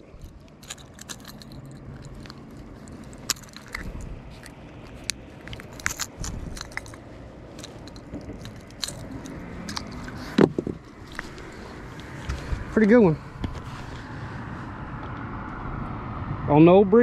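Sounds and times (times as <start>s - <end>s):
pliers clicking on hooks: 0.0s - 7.0s, 7.6s - 10.4s.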